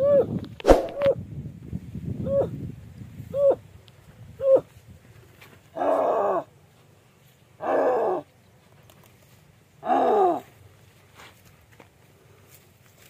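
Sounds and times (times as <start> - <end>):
man making loud animal-like calls: 0.0 - 1.2, 2.2 - 2.6, 3.3 - 3.7, 4.4 - 4.8, 5.7 - 6.5, 7.6 - 8.3, 9.8 - 10.5.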